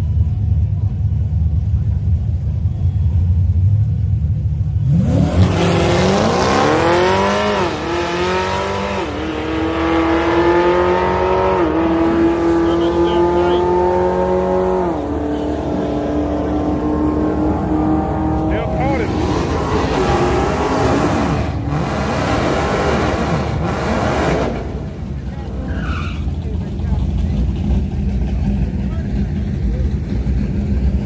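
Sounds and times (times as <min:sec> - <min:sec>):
car engine idling: 0:00.0 - 0:05.0, 0:24.5 - 0:31.0
car engine revving through gears: 0:04.8 - 0:25.2.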